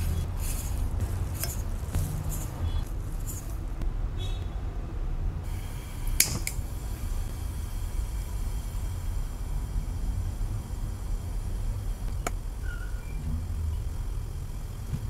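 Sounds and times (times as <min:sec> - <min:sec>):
sugar pouring into saucepan: 0:00.0 - 0:01.7
steady low hum: 0:00.0 - 0:04.1, 0:05.2 - 0:15.0.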